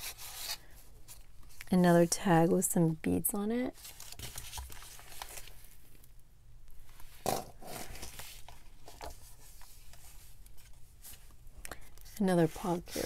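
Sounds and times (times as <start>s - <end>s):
paper pages rustling: 3.8s - 5.8s, 6.9s - 11.4s.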